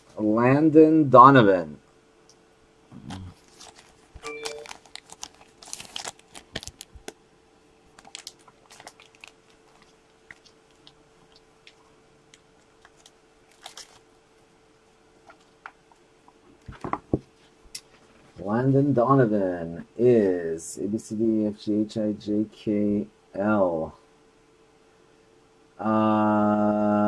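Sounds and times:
faint steady hum: 0:00.0 - 0:27.0
small items clicking and crinkling: 0:03.4 - 0:07.2, 0:07.9 - 0:14.0.

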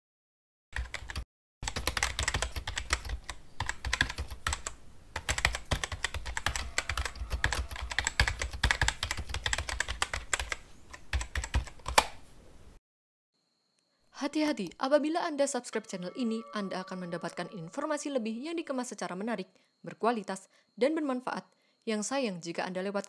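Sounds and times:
keyboard typing: 0:00.8 - 0:12.2.

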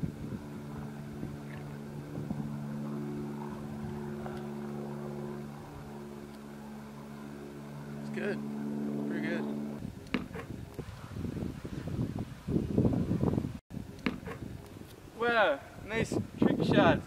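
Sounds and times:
engine drone: 0:00.0 - 0:10.5.

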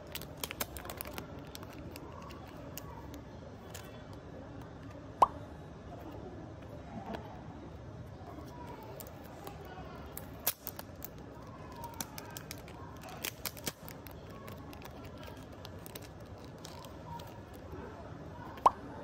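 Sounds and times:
packaging crinkling and tearing: 0:00.0 - 0:04.1, 0:08.6 - 0:17.8.

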